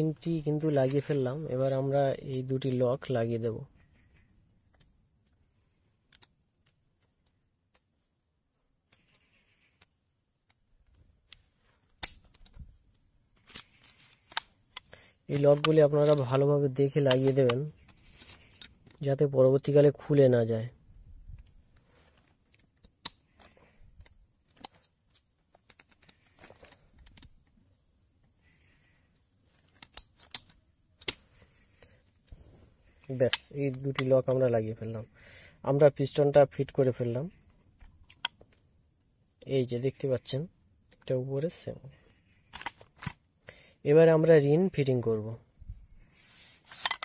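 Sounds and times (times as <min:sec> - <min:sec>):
small sharp metallic clicks: 0:04.6 - 0:19.9, 0:21.3 - 0:34.5, 0:35.7 - 0:38.7, 0:45.8 - 0:47.0.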